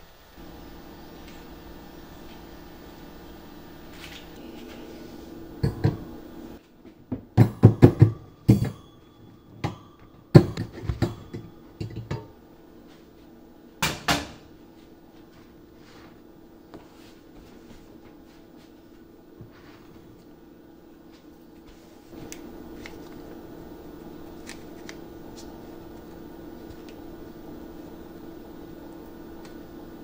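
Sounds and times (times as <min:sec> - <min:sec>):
metal pan knocking on wire rack: 0:07.4 - 0:08.9.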